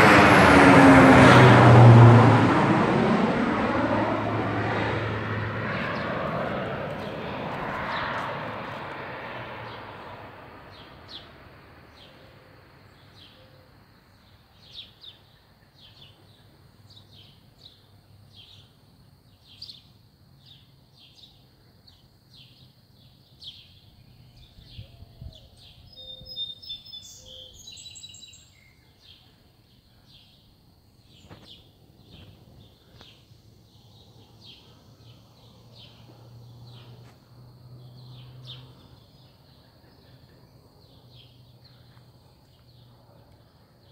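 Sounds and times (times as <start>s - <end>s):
airplane engine: 0.0s - 13.5s, 30.9s - 43.9s
birds chirping: 5.6s - 8.9s, 21.1s - 30.4s.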